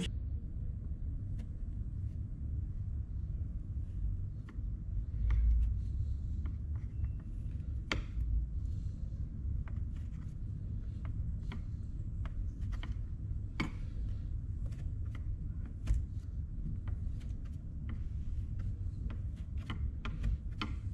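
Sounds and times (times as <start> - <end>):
low steady rumble: 0.0 - 20.9.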